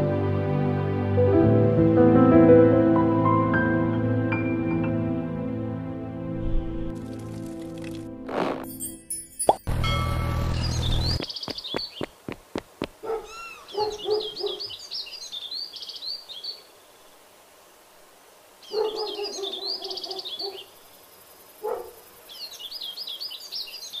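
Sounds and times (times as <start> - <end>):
cartoon bird chirps: 13.2 - 13.9.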